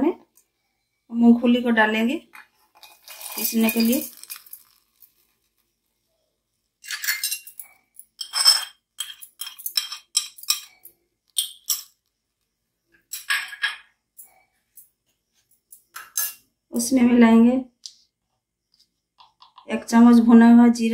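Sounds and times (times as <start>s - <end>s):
peanuts clinking into steel jar: 2.7s - 5.6s, 6.8s - 12.0s.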